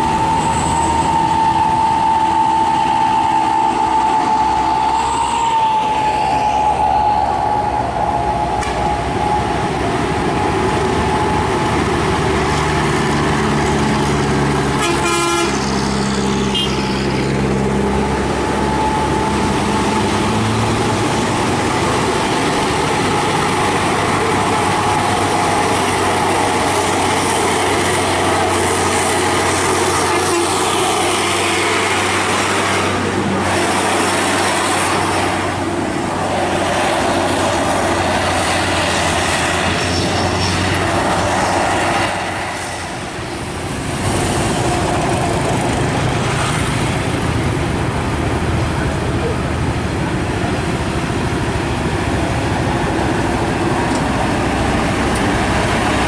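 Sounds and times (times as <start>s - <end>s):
truck diesel engines running: 0.0s - 56.0s
vehicle horn: 14.8s - 15.7s, 16.5s - 16.9s.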